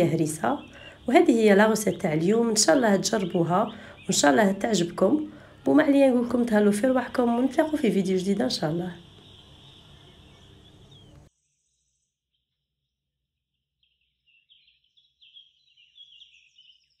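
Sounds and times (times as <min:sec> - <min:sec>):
high bird-like chirps: 0:00.0 - 0:05.6, 0:07.0 - 0:11.3.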